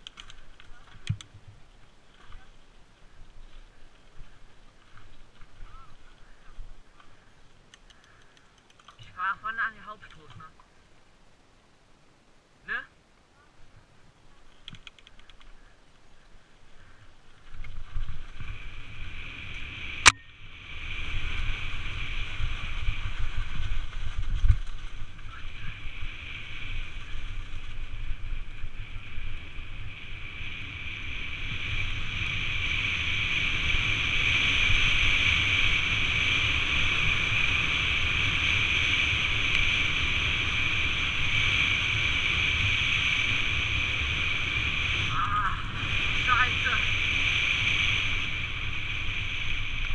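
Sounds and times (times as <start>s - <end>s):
sharp click: 14.6s - 15.5s
bike tyres rushing whir: 16.4s - 49.9s.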